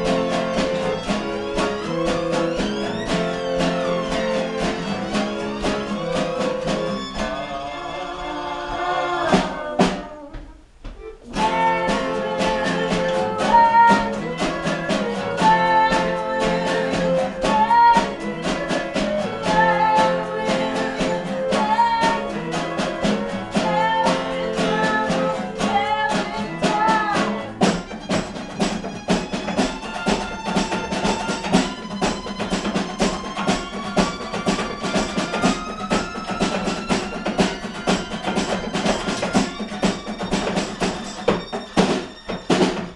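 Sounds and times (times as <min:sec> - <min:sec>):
acoustic guitars strumming: 0:00.0 - 0:42.9
light percussion: 0:00.0 - 0:42.9
violin: 0:00.0 - 0:42.9
person singing: 0:07.0 - 0:27.5.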